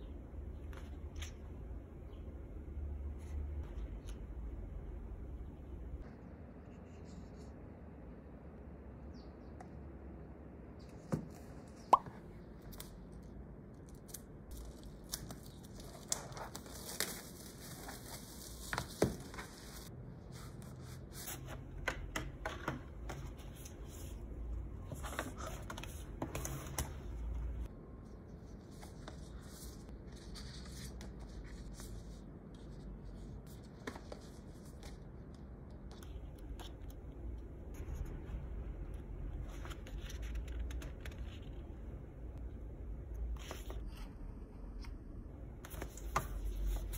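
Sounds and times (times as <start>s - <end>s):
book pages flipping: 0.6s - 2.2s, 13.8s - 27.7s, 28.3s - 44.1s, 44.8s - 46.9s
paper rustling: 14.0s - 27.7s, 45.6s - 46.9s.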